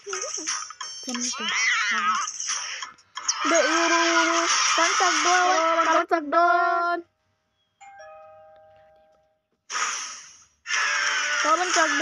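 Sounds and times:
doorbell ding-dong: 7.8s - 9.4s.

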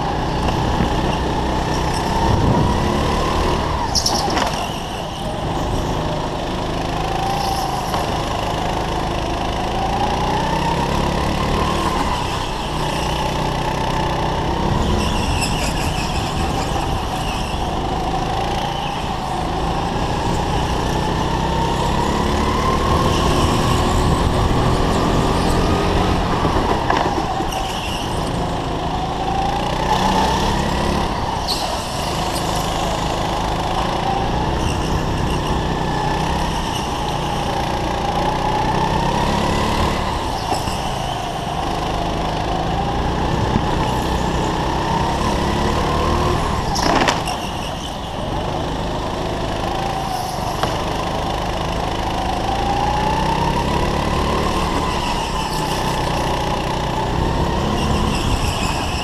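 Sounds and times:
go-kart engine revving: 0.0s - 59.0s.

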